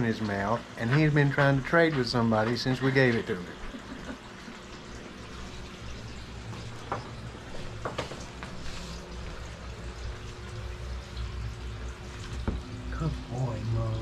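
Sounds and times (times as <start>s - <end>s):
gas heater hissing: 0.0s - 14.0s.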